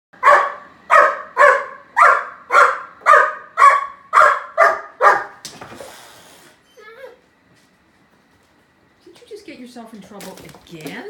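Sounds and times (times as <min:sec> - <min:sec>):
puppy barking: 0:00.2 - 0:05.4.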